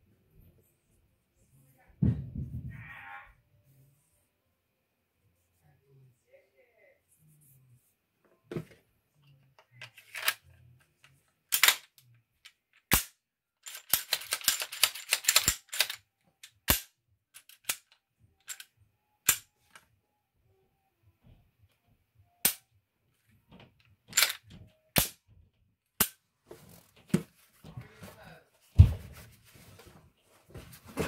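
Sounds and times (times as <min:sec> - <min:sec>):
pistol slide metallic clicks: 0:19.3 - 0:19.5.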